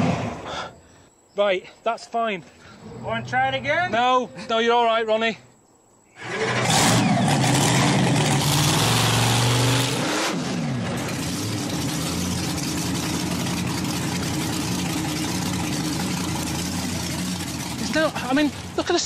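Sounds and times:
monster truck engine running: 0:06.2 - 0:19.0.

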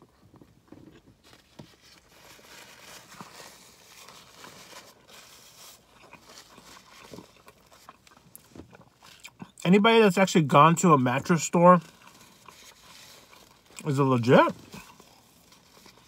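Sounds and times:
paper napkin rustling: 0:01.2 - 0:07.2
chewing: 0:03.2 - 0:09.6, 0:11.9 - 0:13.8, 0:14.6 - 0:16.0.

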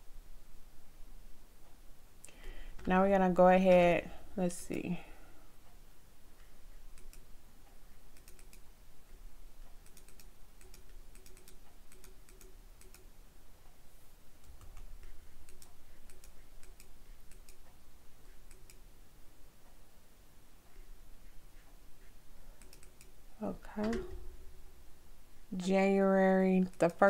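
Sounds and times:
computer mouse clicks: 0:06.9 - 0:07.3, 0:08.1 - 0:08.7, 0:09.6 - 0:13.1, 0:14.4 - 0:18.8, 0:22.6 - 0:23.2, 0:26.6 - 0:27.0
keyboard clicks: 0:08.1 - 0:08.6, 0:09.7 - 0:13.1, 0:14.4 - 0:17.6, 0:22.6 - 0:23.1.

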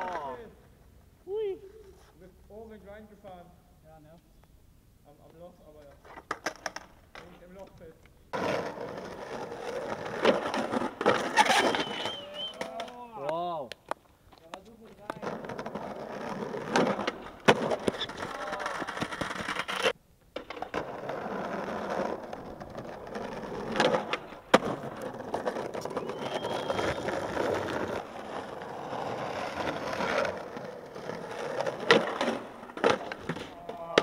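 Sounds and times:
skateboard wheels rolling on concrete: 0:00.0 - 0:34.0
skateboard clacks: 0:06.0 - 0:07.7, 0:08.3 - 0:34.0.

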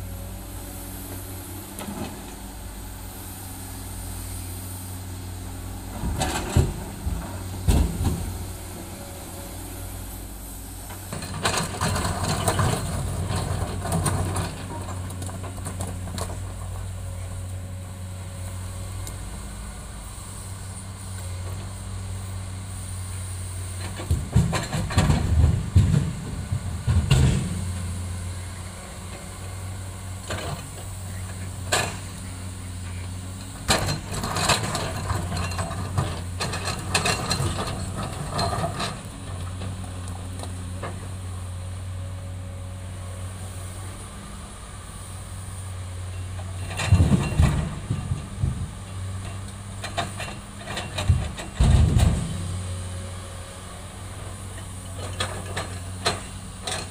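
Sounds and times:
diesel engine droning: 0:00.0 - 0:56.9
rocks clattering into metal truck bed: 0:46.5 - 0:52.6.

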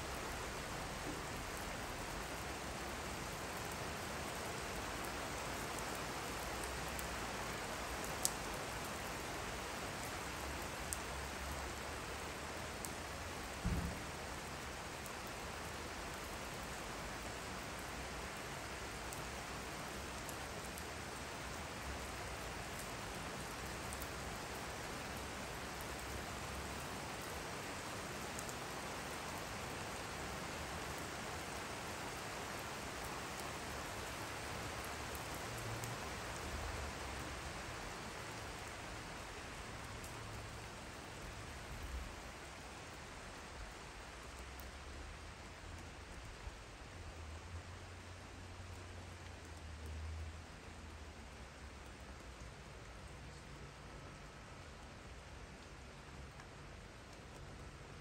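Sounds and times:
steady rain falling: 0:00.0 - 0:58.0
low thump: 0:13.6 - 0:14.0.

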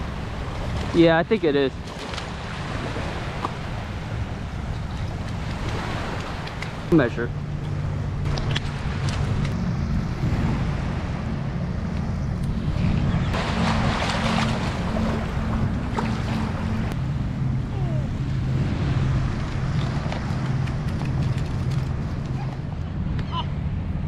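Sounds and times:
wind on microphone: 0:01.8 - 0:24.0
surf washing over beach: 0:13.3 - 0:21.2.

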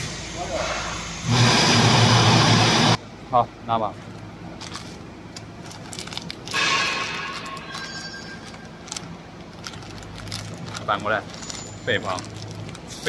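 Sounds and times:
steady low hum: 0:00.0 - 0:13.0
plastic pouches crinkling: 0:04.1 - 0:13.0.

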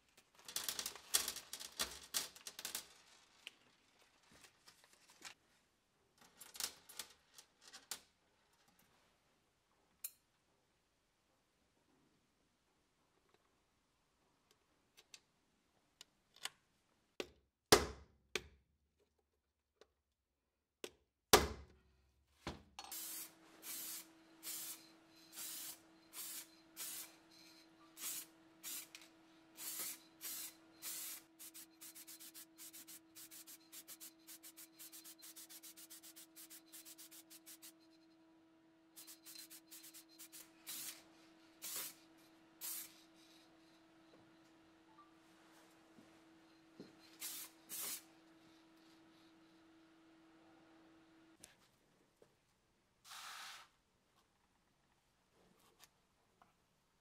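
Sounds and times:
spray paint can hissing: 0:22.9 - 0:27.2, 0:28.0 - 0:29.0, 0:29.6 - 0:37.8, 0:39.0 - 0:41.0, 0:41.6 - 0:42.0, 0:42.6 - 0:43.0, 0:47.2 - 0:48.0, 0:53.1 - 0:53.7.

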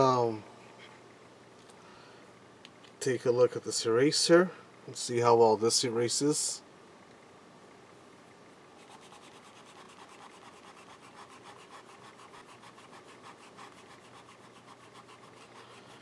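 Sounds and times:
eraser rubbing on paper: 0:08.8 - 0:16.0.

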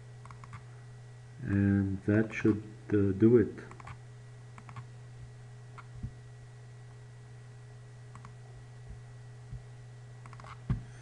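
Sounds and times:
low electrical hum: 0:00.0 - 0:11.0
faint computer mouse clicks: 0:04.6 - 0:04.8, 0:08.1 - 0:08.4, 0:10.2 - 0:10.6.

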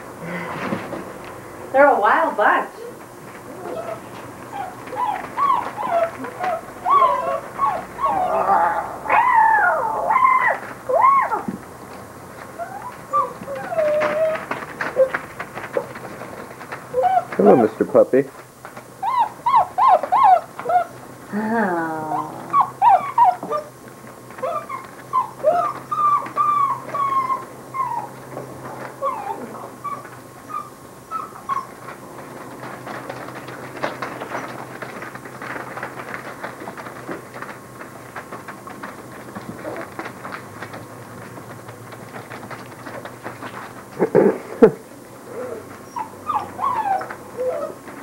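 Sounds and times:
puppies whining and yelping: 0:02.8 - 0:11.6, 0:12.5 - 0:17.7, 0:19.0 - 0:21.0, 0:21.7 - 0:37.5, 0:39.6 - 0:40.8, 0:45.2 - 0:48.0.

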